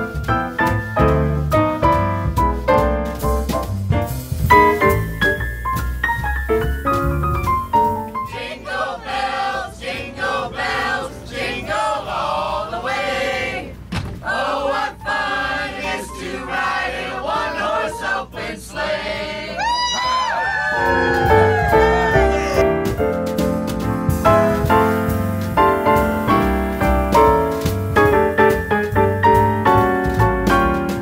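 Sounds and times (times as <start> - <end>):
piano melody: 0.0 - 9.6, 20.7 - 31.0
group of people singing: 8.2 - 19.6
rising whoop: 19.5 - 22.6.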